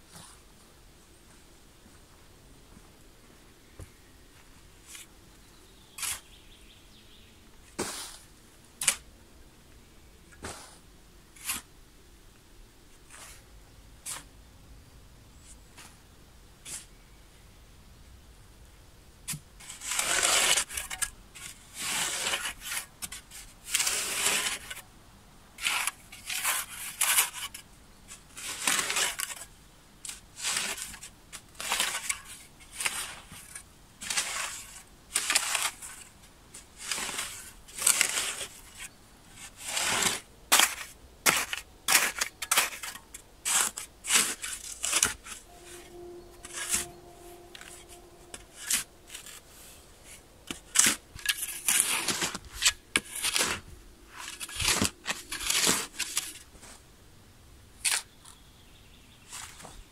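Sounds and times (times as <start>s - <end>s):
shovel digging into sandy soil: 6.0s - 6.4s, 7.7s - 9.0s, 19.3s - 24.8s, 25.6s - 27.6s, 28.2s - 45.4s, 47.6s - 56.5s.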